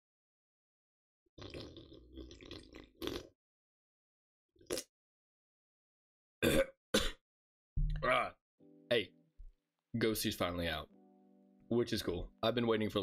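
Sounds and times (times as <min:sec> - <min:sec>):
person gulping and swallowing: 0:01.4 - 0:03.3.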